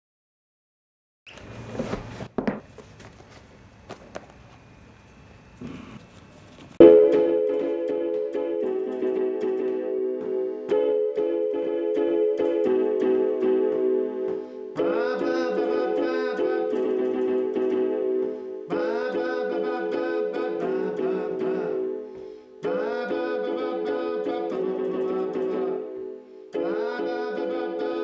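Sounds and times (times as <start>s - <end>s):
high keyboard part swooping upward: 6.8s - 22.0s
electric keyboard chords: 6.8s - 28.0s.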